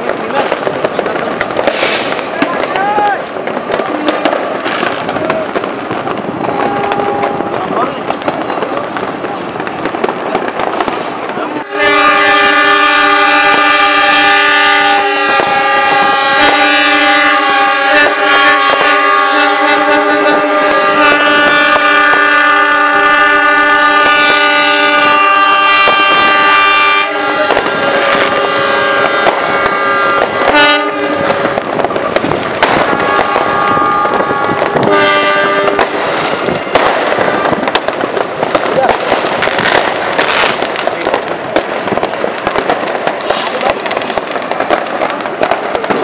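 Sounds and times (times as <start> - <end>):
fireworks cracking: 0.0 - 46.0
locomotive horns blowing chords: 6.4 - 7.7, 11.5 - 31.7, 32.6 - 37.6.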